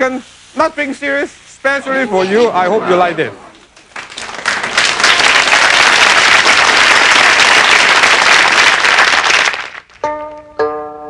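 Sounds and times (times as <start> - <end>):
audience applauding: 2.9 - 10.0
plucked-string tune: 10.0 - 11.0.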